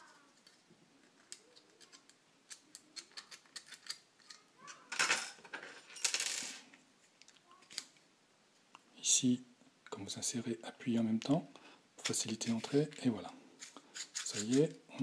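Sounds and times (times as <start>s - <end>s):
plastic parts clicking: 0.4s - 4.4s.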